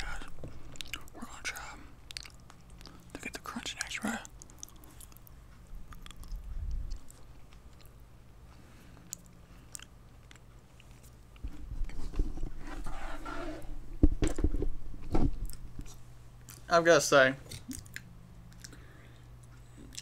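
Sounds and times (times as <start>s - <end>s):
chewing fish: 0.5s - 1.2s, 2.0s - 3.2s, 4.2s - 8.0s, 19.4s - 20.0s
microphone arm bumps and knock: 13.9s - 15.5s.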